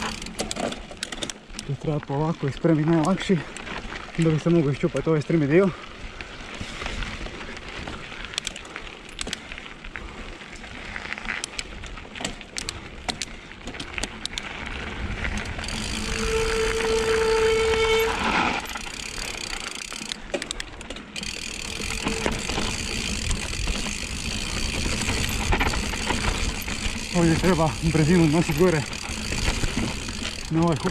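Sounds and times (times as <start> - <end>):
bike clicks and rattles: 0.0 - 30.9
bike tyres on dirt: 0.0 - 30.9.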